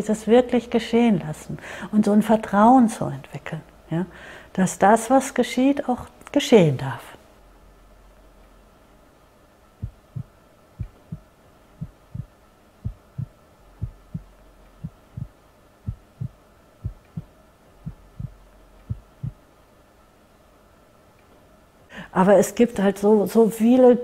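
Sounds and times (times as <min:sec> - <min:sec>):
slow heartbeat thumps: 0:09.8 - 0:19.5.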